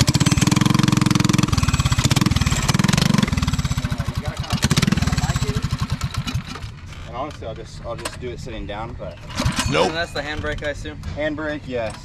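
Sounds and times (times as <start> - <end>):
small engine running: 0.0 - 6.9.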